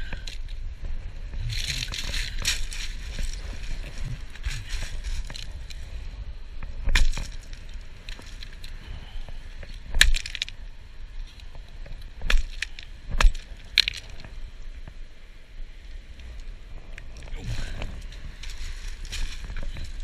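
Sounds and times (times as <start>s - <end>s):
handling rustle: 1.3s - 10.6s, 16.2s - 20.0s.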